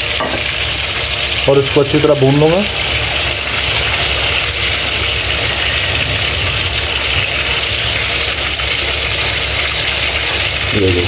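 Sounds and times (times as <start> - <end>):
onions sizzling in hot oil: 0.0 - 11.0
low rumble: 4.6 - 8.5.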